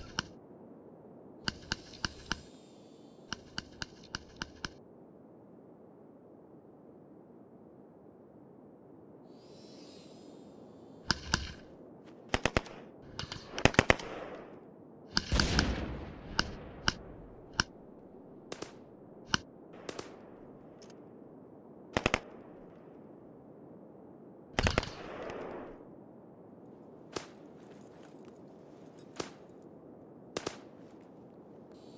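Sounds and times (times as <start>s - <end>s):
echoing rumble of shots: 12.3s - 14.5s, 15.1s - 17.8s, 18.5s - 20.8s, 21.9s - 22.8s, 24.6s - 25.8s
small-arms gunfire: 15.1s - 17.0s, 30.4s - 30.8s.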